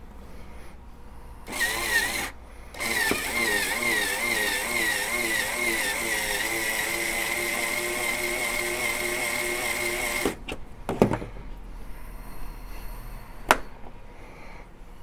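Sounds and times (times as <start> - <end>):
drill motor whine: 1.5 - 10.4.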